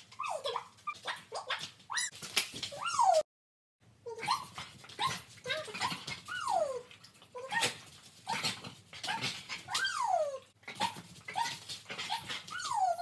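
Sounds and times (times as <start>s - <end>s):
dog whining: 9.1s - 13.0s
dog yipping: 9.1s - 13.0s.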